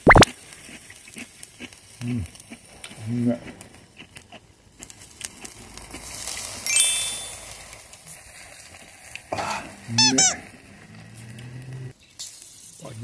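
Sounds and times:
food sizzling on a grill: 0:00.3 - 0:13.0
glass ringing: 0:06.7 - 0:07.5.

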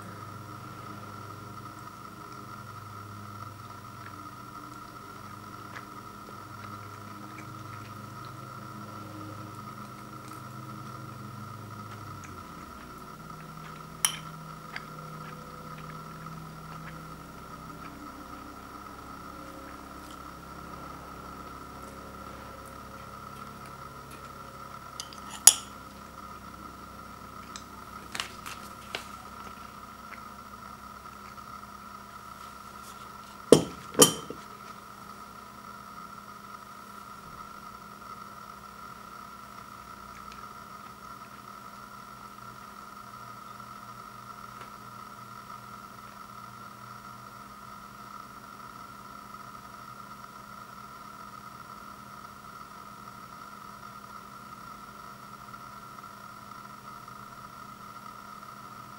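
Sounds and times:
machine hum with whine: 0:00.0 - 0:58.9
metal utensil clinking ceramic bowl: 0:14.1 - 0:14.4, 0:25.0 - 0:25.7, 0:33.6 - 0:34.4.

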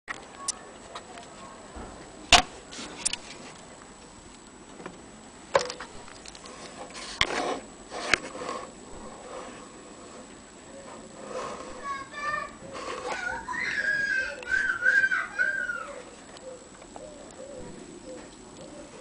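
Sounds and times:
muffled rustle: 0:00.1 - 0:05.0, 0:05.8 - 0:14.7.

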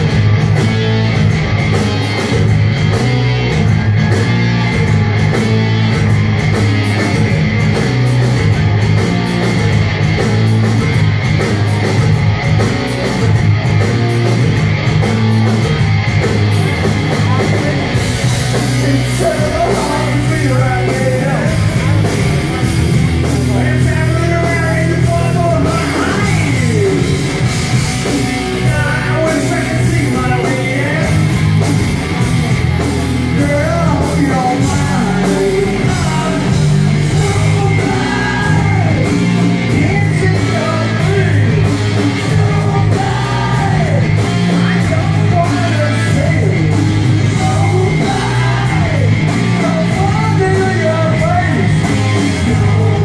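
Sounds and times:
live rock band playing: 0:00.0 - 0:53.0
lead vocal singing: 0:18.5 - 0:31.8, 0:33.2 - 0:53.0.

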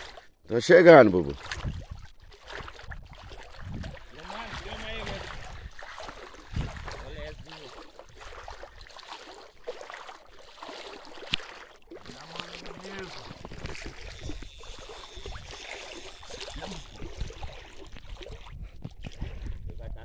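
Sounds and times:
splashing steps in water: 0:00.0 - 0:00.3, 0:01.0 - 0:19.6.

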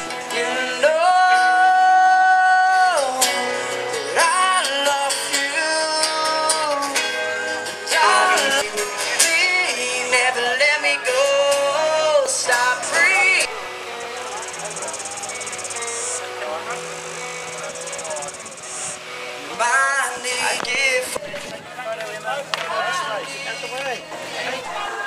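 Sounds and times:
person singing with music: 0:00.0 - 0:16.7, 0:18.9 - 0:21.5.

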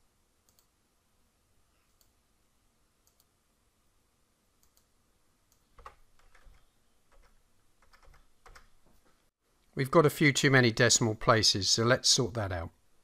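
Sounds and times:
computer mouse clicks: 0:00.4 - 0:00.7, 0:01.9 - 0:02.2, 0:03.0 - 0:03.3, 0:04.6 - 0:04.9, 0:05.5 - 0:08.7.

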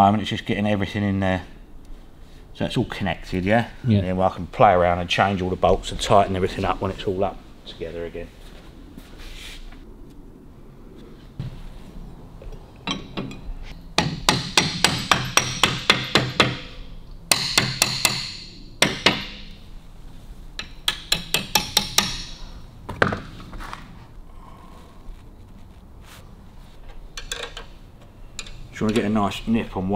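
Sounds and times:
hammer tapping on metal: 0:14.0 - 0:19.5, 0:20.6 - 0:22.4.

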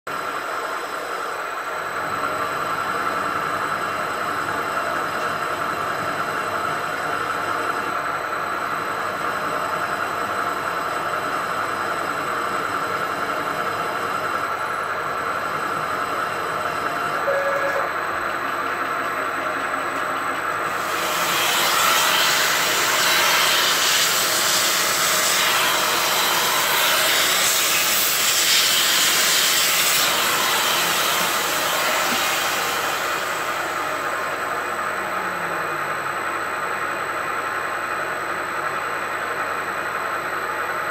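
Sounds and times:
milling machine running: 0:00.2 - 0:40.8
drill cutting metal high whine: 0:20.7 - 0:34.8.

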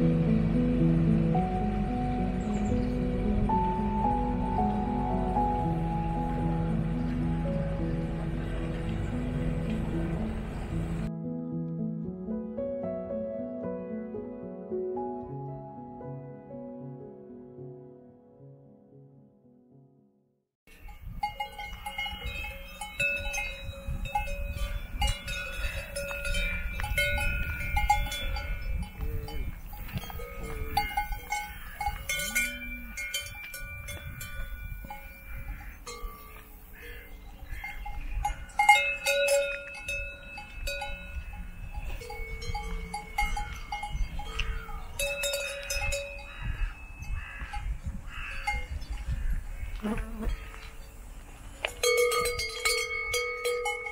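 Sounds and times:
cowbells clanking: 0:20.7 - 0:49.1, 0:51.6 - 0:53.9.

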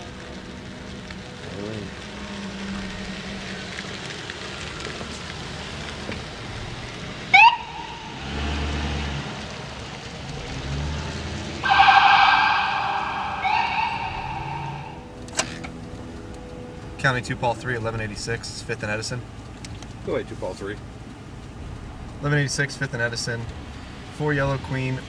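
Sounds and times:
low vehicle rumble: 0:00.0 - 0:25.0
siren whoop: 0:07.3 - 0:08.2, 0:11.6 - 0:15.2.

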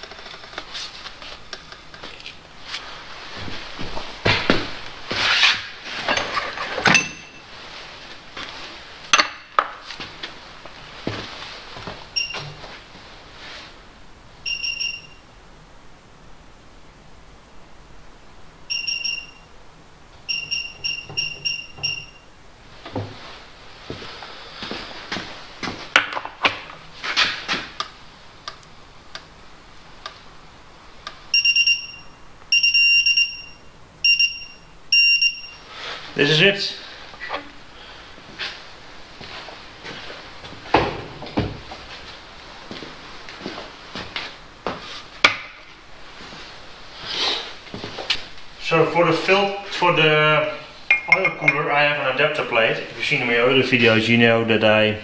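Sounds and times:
jacket fabric rustling: 0:00.6 - 0:09.1, 0:09.8 - 0:13.9, 0:36.8 - 0:48.6
long high electronic beeps: 0:18.7 - 0:19.5, 0:20.3 - 0:22.3, 0:31.3 - 0:35.6.

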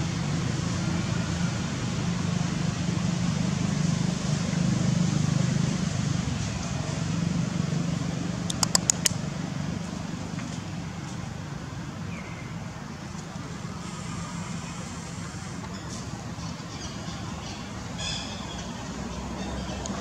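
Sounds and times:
low mechanical hum: 0:00.0 - 0:20.0
outdoor background noise: 0:00.0 - 0:20.0.

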